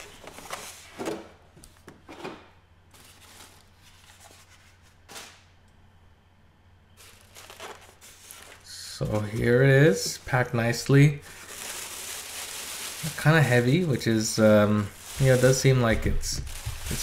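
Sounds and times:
cardboard and styrofoam scrapes: 0:14.9 - 0:17.0.

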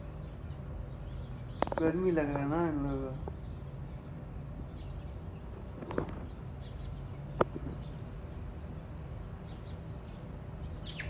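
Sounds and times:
steady high hum: 0:00.0 - 0:11.0
faint bird chirps: 0:09.2 - 0:11.0.

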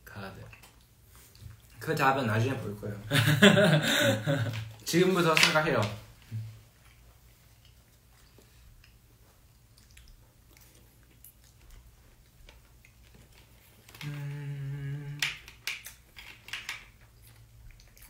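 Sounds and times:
person humming low note: 0:14.0 - 0:15.4.

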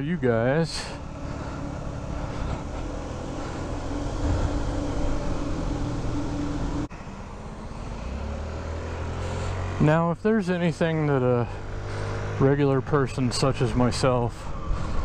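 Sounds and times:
scooter engine cruising: 0:00.0 - 0:15.0
wind and road noise: 0:00.0 - 0:15.0
low steady hum: 0:00.8 - 0:06.9.

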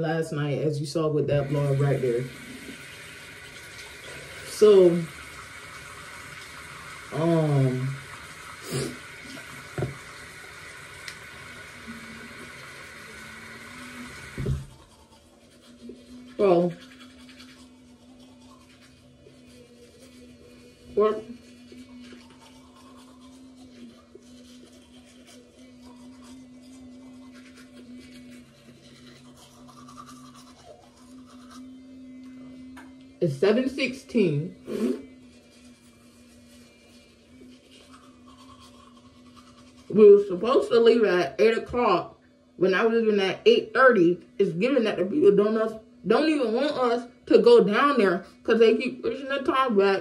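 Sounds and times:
electric toothbrush humming: 0:00.0 - 0:50.0
sink tap running: 0:01.3 - 0:15.2
bristles scrubbing teeth: 0:01.4 - 0:41.0.

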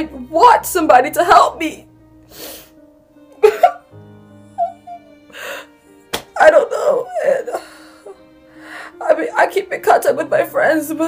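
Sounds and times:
soft background music: 0:00.0 - 0:11.0
young person sobbing: 0:03.4 - 0:03.9, 0:04.5 - 0:05.8, 0:06.5 - 0:08.3.

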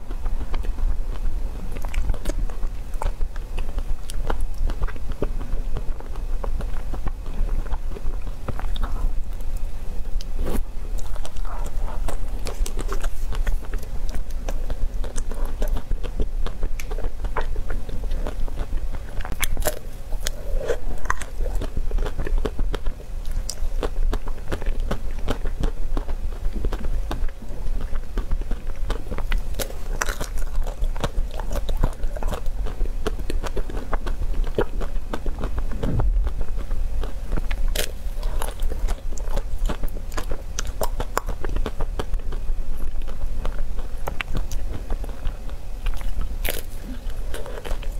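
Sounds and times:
steady low hum: 0:00.0 - 0:47.9
chocolate shell crunching: 0:28.0 - 0:35.5.

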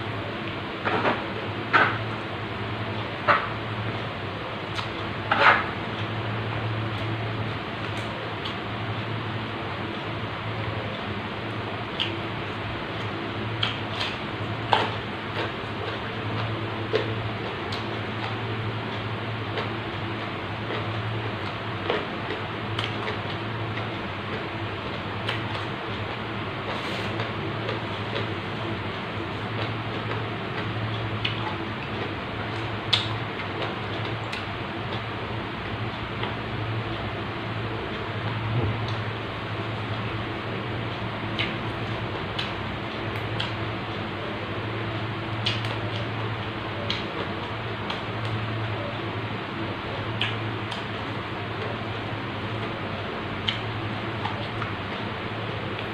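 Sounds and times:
low background hum: 0:00.0 - 0:55.9
crunching and chewing vegetables: 0:00.4 - 0:55.9
low hum: 0:37.6 - 0:40.8.

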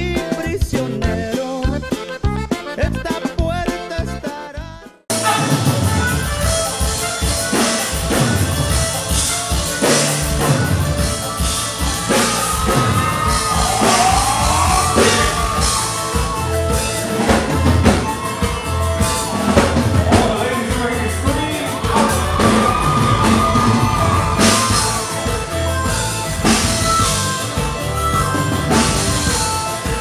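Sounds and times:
person singing: 0:00.0 - 0:05.8, 0:11.9 - 0:25.5
band music through speakers: 0:00.0 - 0:30.0
drum kit beat: 0:00.0 - 0:30.0
held melody notes bending in pitch: 0:05.1 - 0:30.0.

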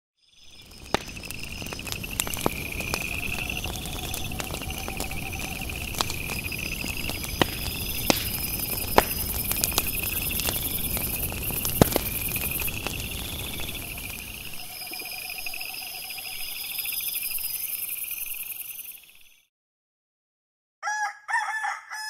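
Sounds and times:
night insects chirping: 0:00.2 - 0:19.5
campfire popping and crackling: 0:00.4 - 0:17.7.

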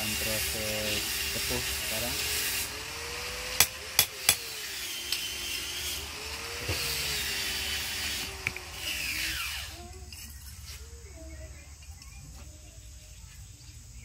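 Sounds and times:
steady hiss: 0:00.0 - 0:03.4.

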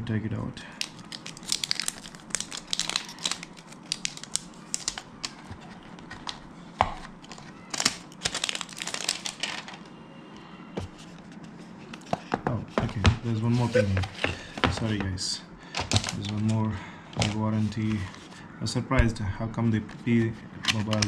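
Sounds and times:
plastic wrapping crinkling: 0:00.8 - 0:09.9.

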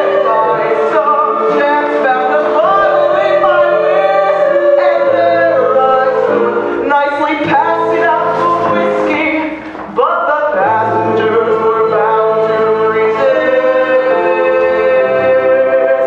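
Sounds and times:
choir singing in harmony: 0:00.0 - 0:06.9, 0:11.4 - 0:16.0.

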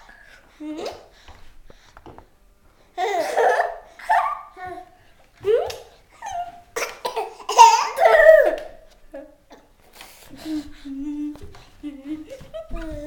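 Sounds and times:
children giggling: 0:03.0 - 0:04.7.

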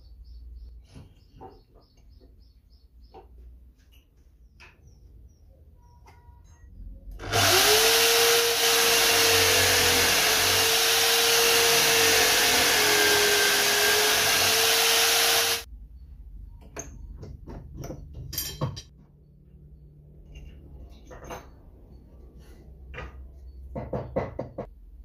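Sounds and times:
electric drill boring into wood: 0:07.2 - 0:15.7.

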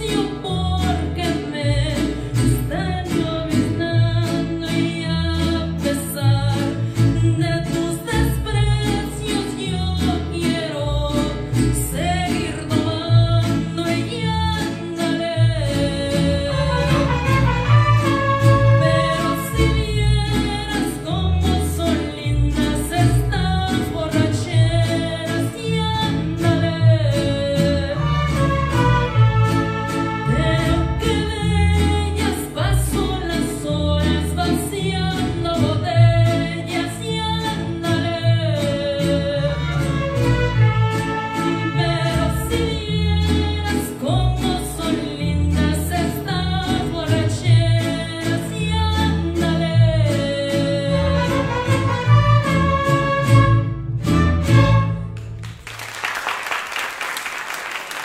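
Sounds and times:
woman singing: 0:00.0 - 0:53.6
strummed guitars: 0:00.0 - 0:55.6
violins playing: 0:16.6 - 0:20.0, 0:28.0 - 0:31.0, 0:39.5 - 0:42.6, 0:51.0 - 0:55.2.

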